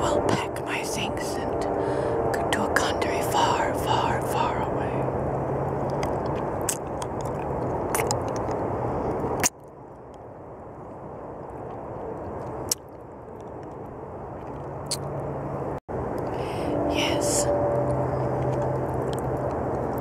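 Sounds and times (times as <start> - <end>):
low rumbling background noise: 0.0 - 20.0
licking and sucking lollipop: 5.8 - 10.2, 11.4 - 15.1, 17.9 - 20.0
wet mouth smacks: 5.9 - 8.6.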